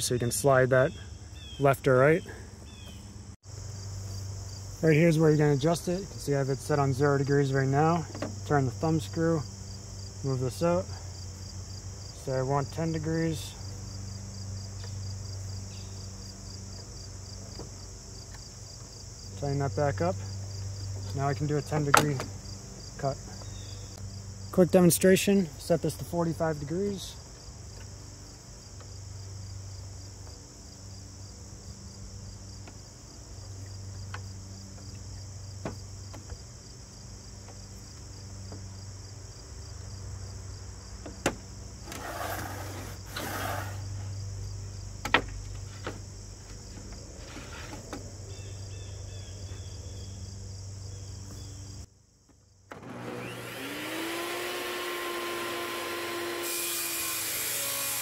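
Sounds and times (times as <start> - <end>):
crickets chirring: 0.0 - 55.0
sharp clicks and knocks: 45.0 - 48.0
table saw motor whine: 52.7 - 58.0.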